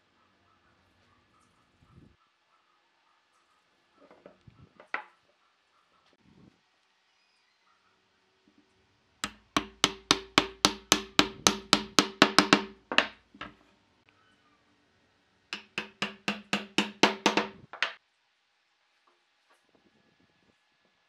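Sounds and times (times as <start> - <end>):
wooden mallet knocking wood: 9.2 - 13.6, 15.6 - 18.0.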